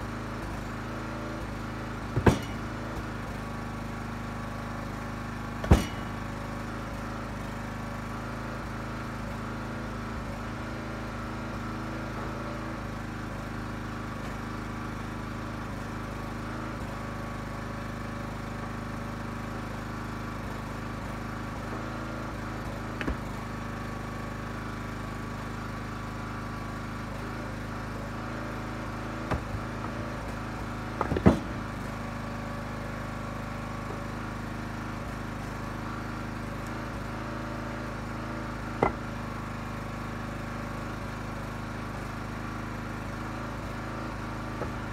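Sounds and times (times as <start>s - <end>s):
small gas engine running: 0.0s - 44.9s
sharp wooden knocks: 2.2s - 3.1s, 5.6s - 6.2s, 29.3s - 30.0s, 31.0s - 31.7s, 38.8s - 39.1s.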